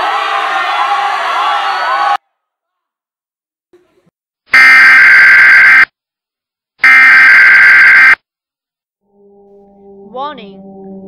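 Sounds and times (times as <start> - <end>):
buzzy electronic alert screeches: 4.6 - 5.9, 6.8 - 8.2.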